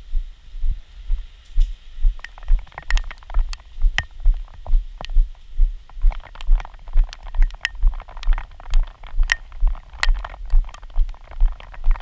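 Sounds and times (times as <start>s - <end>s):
low thudding with pedalling: 1.1s - 12.0s
raindrops ticking on plastic: 2.2s - 5.2s, 5.9s - 12.0s.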